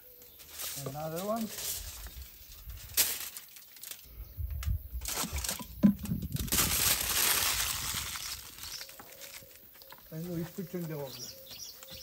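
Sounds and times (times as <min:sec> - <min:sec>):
aluminium foil crinkling: 0:00.2 - 0:04.2, 0:05.0 - 0:05.7, 0:06.3 - 0:10.0.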